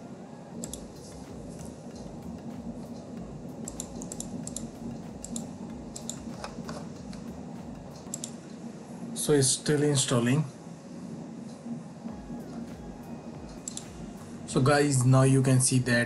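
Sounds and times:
steady low hum: 0:00.0 - 0:16.0
computer clicks: 0:00.6 - 0:01.0, 0:03.6 - 0:07.3, 0:07.9 - 0:08.4, 0:13.5 - 0:14.0.

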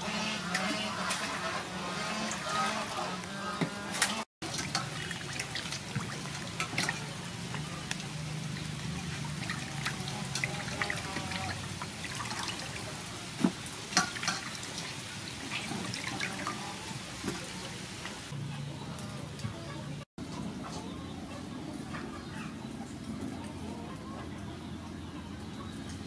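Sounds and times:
water sloshing and splashing: 0:00.2 - 0:18.4.

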